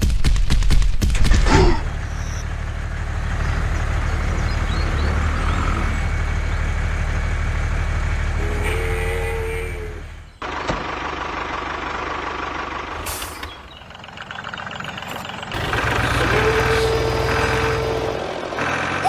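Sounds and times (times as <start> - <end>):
heavy diesel engine running: 1.7 - 19.0.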